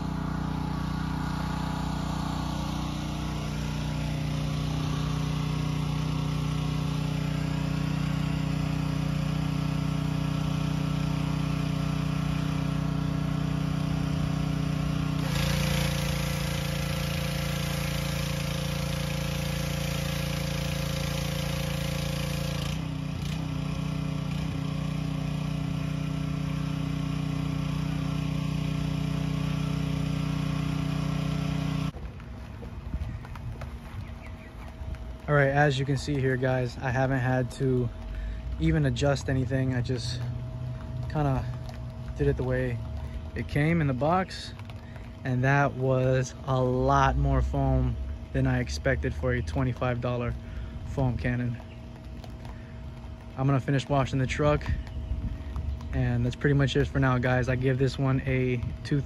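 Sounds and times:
small petrol engine running: 0.0 - 59.0
water spraying hiss: 15.2 - 22.8.

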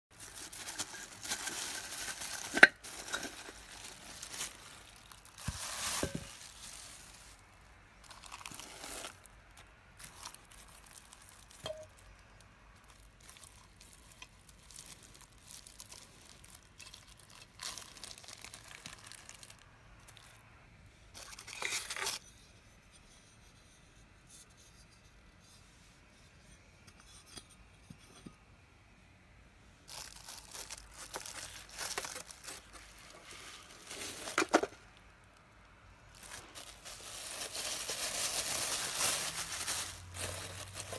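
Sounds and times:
plastic bags crinkling: 0.1 - 20.4, 29.8 - 40.9.

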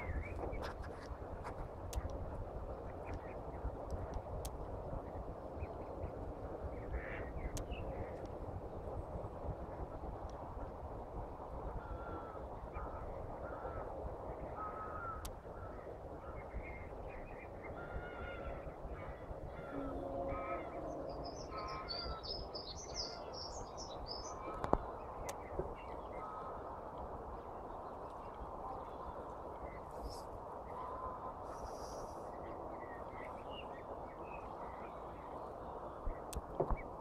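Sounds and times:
outdoor background noise: 0.0 - 37.0
birds calling: 17.4 - 26.6
high bird twittering: 19.6 - 24.3.

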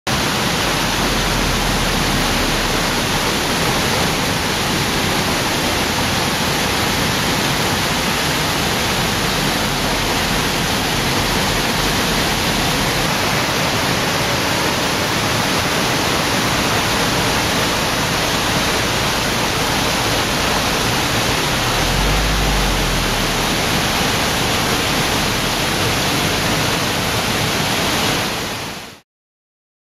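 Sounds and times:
water rushing over rocks: 0.1 - 29.0
low rumble: 0.6 - 7.2, 16.5 - 26.0.

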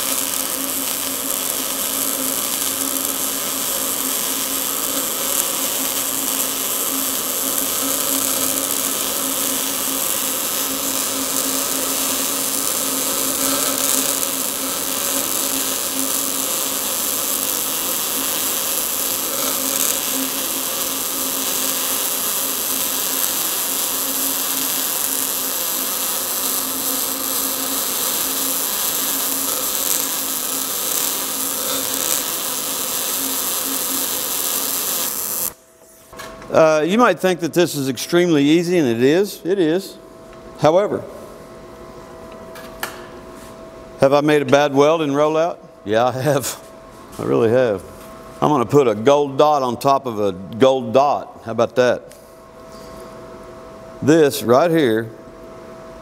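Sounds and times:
welding arc burning: 0.0 - 35.8
steady hum: 0.0 - 56.0.

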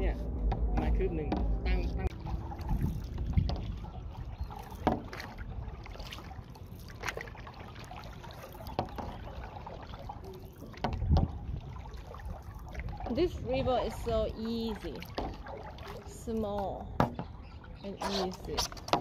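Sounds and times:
steady low background: 0.0 - 4.4
paddle splashing in water: 0.5 - 19.0.

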